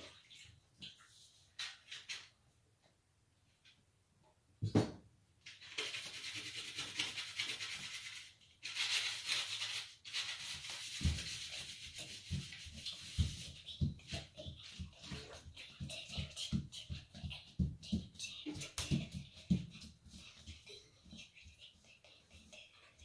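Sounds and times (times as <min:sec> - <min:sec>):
rubbing and scraping: 0:05.5 - 0:23.0.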